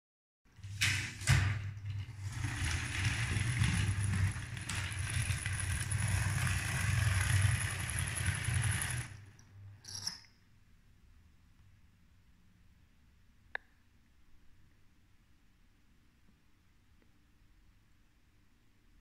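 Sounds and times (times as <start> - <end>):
wheels rattling on track: 1.9 - 9.3
toy train motor hum: 2.5 - 9.3.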